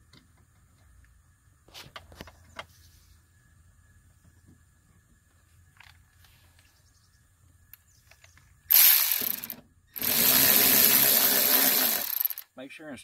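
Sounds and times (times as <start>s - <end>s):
cordless electric ratchet running: 8.7s - 12.4s.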